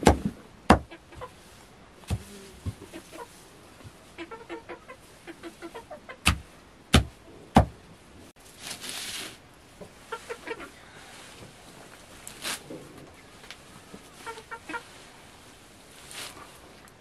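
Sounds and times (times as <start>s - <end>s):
sharp knocks: 0.0s - 0.9s, 6.2s - 7.8s
hens clucking: 0.7s - 6.6s, 9.8s - 11.4s, 12.7s - 15.2s
brief rustle: 11.4s - 13.6s, 16.0s - 17.0s.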